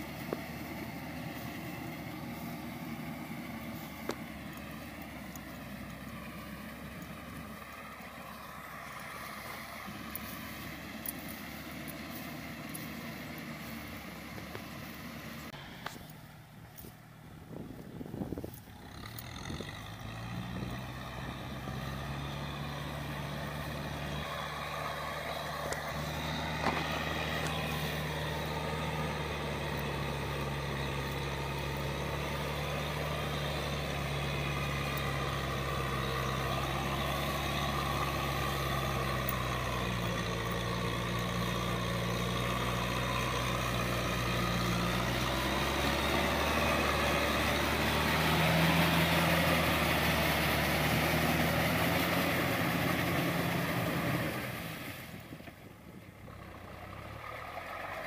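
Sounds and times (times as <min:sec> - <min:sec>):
tractor diesel engine running: 0:00.0 - 0:58.0
rotary tiller churning mud: 0:18.6 - 0:55.5.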